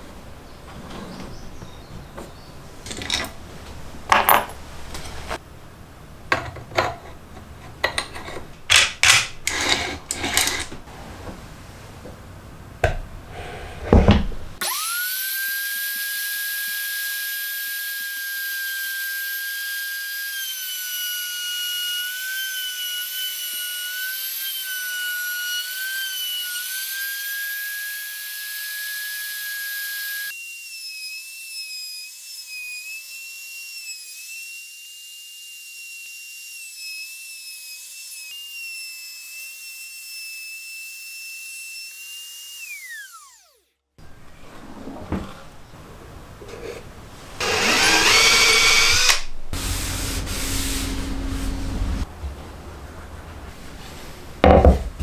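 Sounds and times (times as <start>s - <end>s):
trim router whining: 14.6s - 43.7s, 47.4s - 52.1s.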